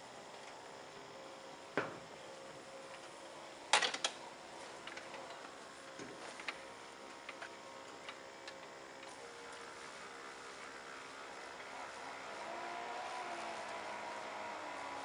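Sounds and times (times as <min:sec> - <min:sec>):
pump sprayer hissing: 0:08.8 - 0:15.0
hornets buzzing: 0:09.1 - 0:15.0.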